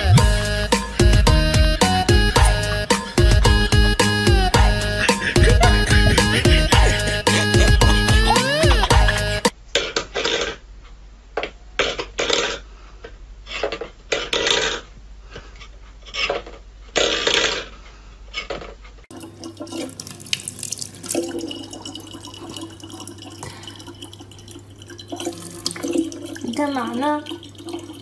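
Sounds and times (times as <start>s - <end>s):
steady low hum: 0.0s - 9.5s
water pouring into plastic bottle: 19.1s - 28.0s.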